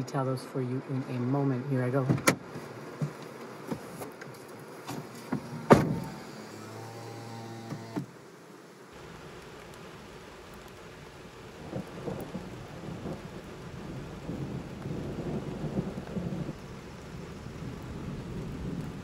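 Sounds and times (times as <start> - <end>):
steady rain: 0.0 - 19.0
rolling thunder: 11.5 - 19.0.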